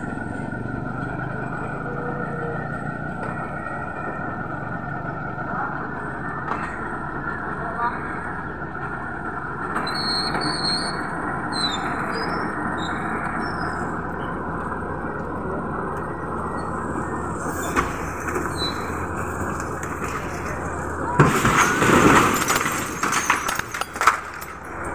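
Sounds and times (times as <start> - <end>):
tow truck engine rumble: 0.0 - 24.9
metal squeals: 9.8 - 14.4, 16.2 - 19.5.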